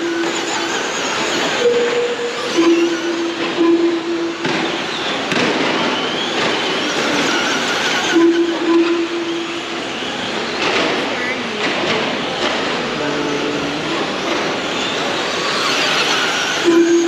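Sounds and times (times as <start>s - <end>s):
rc car motors whining: 14.6s - 17.0s.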